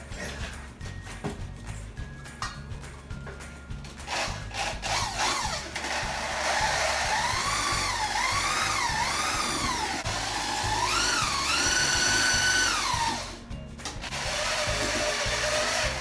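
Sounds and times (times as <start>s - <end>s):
drill motor whine: 4.1s - 13.4s, 14.1s - 16.0s.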